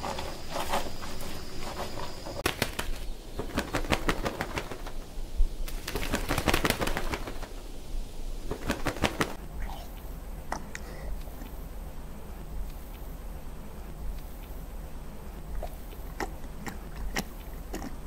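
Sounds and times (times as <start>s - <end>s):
chicks wings fluttering: 0.0s - 9.8s.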